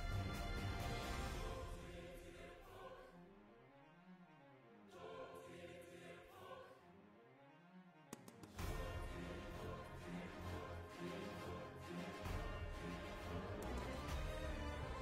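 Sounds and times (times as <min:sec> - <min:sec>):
soft choir-like background music: 0:00.0 - 0:15.0.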